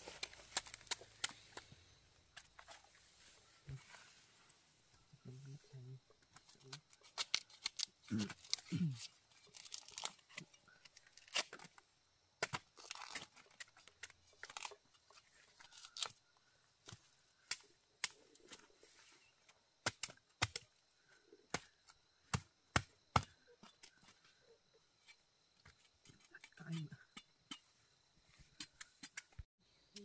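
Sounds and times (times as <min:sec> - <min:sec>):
leaves rustling and tearing: 0:00.0 - 0:01.7, 0:06.4 - 0:11.7, 0:12.8 - 0:16.2.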